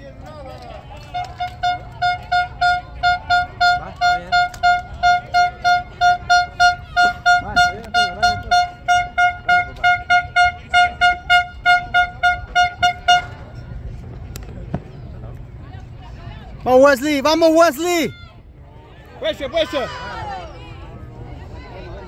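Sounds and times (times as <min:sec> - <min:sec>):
horn tooting short blasts: 0:01.0 - 0:13.6.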